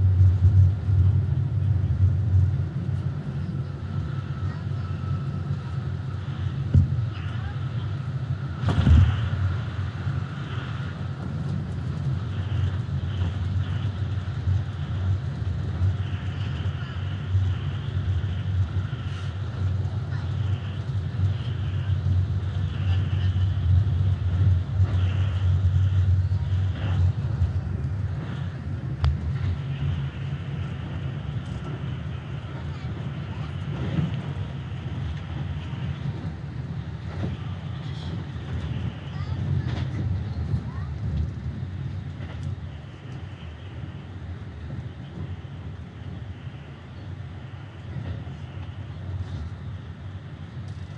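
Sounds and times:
train wheels rumbling on rails: 0.0 - 50.9.

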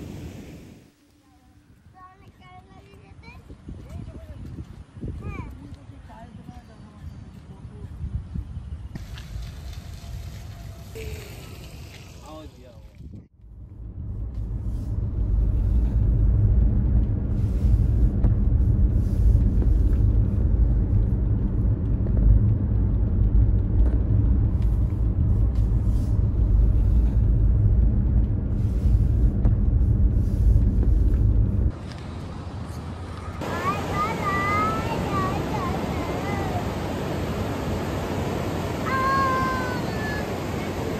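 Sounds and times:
car driving road rumble: 13.3 - 40.9.

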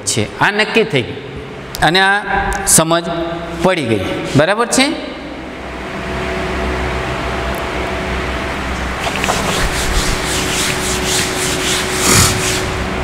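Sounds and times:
eraser rubbing whiteboard: 9.1 - 12.8.

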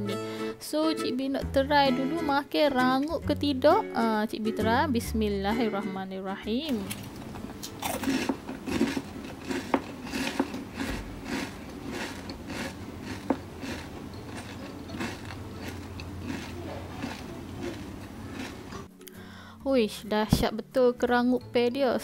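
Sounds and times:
person chewing crunchy rolls: 7.5 - 18.9.

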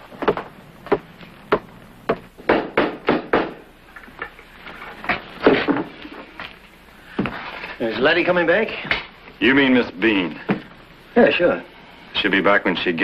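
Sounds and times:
hollow wooden knocks: 0.2 - 4.4.

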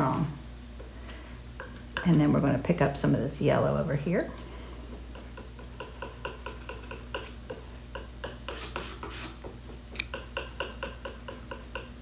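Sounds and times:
brush rubbing on paper: 8.5 - 9.4.

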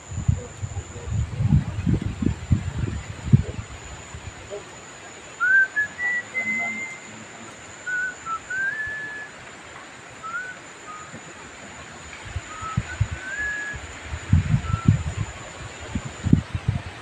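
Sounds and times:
low rumbling thumps: 0.0 - 4.4
whistled notes: 5.4 - 9.3, 10.2 - 11.2, 12.5 - 13.9, 14.5 - 15.0.

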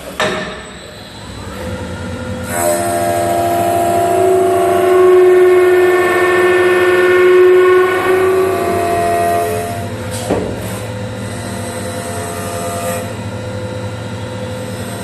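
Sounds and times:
lathe cutting whine: 0.0 - 15.0
rushing noise of cutting wood: 1.5 - 13.3.

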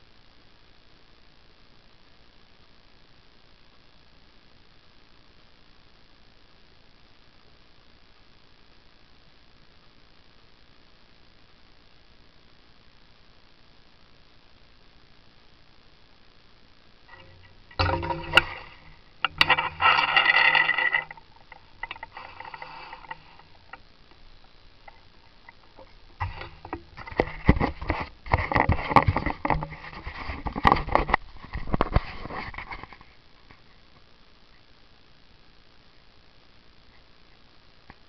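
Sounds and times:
microphone handling rustling: 24.8 - 33.2.

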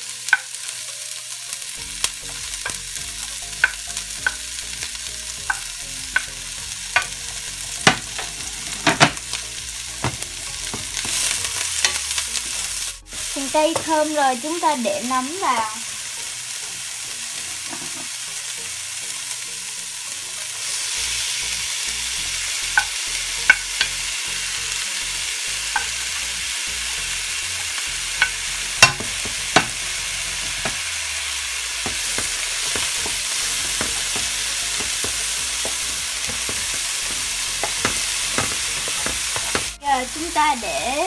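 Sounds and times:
food sizzling in a frying pan: 0.0 - 41.0
utensils clicking against pan: 5.4 - 6.4, 7.0 - 7.2, 25.7 - 26.1, 27.6 - 29.8, 31.8 - 39.8.

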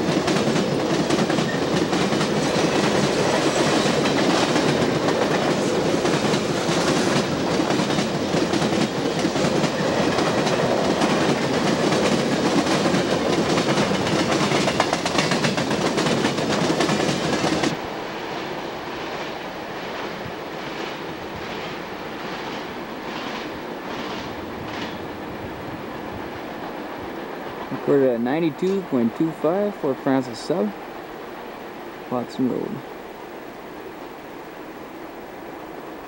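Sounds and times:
train wheels clacking over rail joints: 0.0 - 17.8, 19.8 - 25.2
steady hiss: 0.0 - 36.0.

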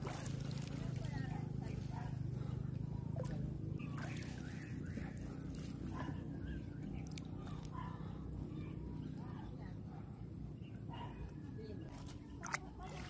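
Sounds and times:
water drips and splashes: 0.0 - 1.2, 3.2 - 5.7, 12.3 - 13.0
wet net pulled from water: 0.0 - 1.2, 3.2 - 5.8.

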